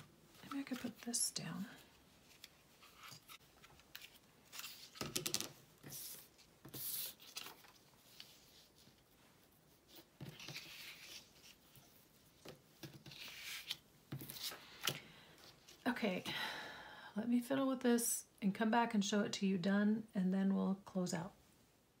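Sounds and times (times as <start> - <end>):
paper rustling: 2.2 - 15.0.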